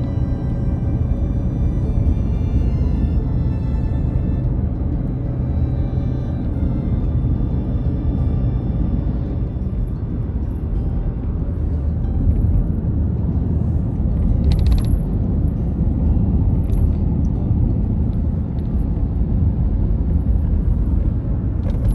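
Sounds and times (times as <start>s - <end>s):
road and engine rumble in car: 0.0s - 21.9s.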